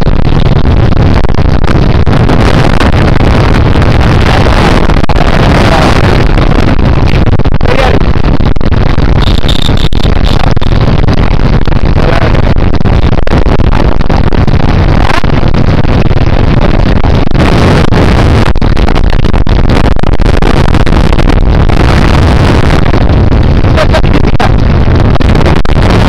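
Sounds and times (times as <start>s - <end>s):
wind noise on microphone: 0.0s - 26.0s
motorcycles running: 1.8s - 18.8s.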